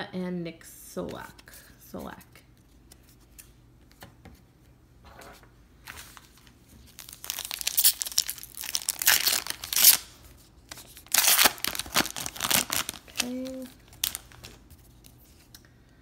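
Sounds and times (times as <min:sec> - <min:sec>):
wrapper tearing and crinkling: 0:06.9 - 0:14.6.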